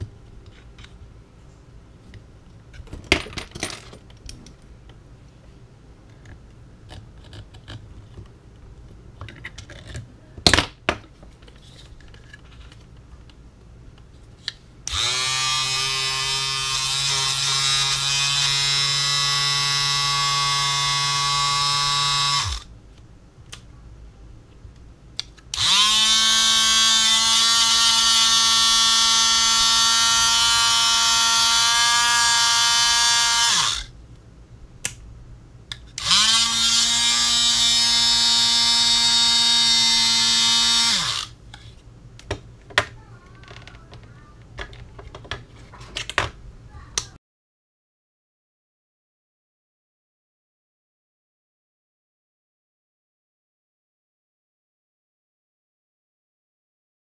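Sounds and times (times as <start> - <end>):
small electric motor whining: 14.9 - 22.7, 25.5 - 33.9, 36.0 - 41.4.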